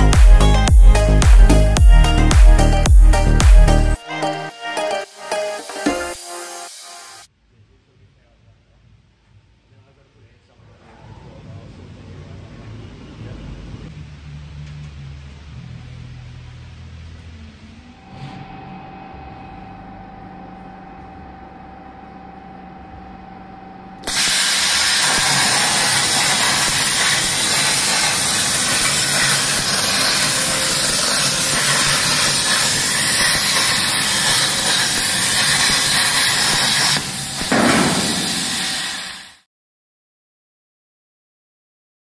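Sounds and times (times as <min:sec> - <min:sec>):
plasma arc hissing: 0:05.6 - 0:07.3, 0:24.0 - 0:39.4
machine hum with thin tone: 0:17.3 - 0:26.0.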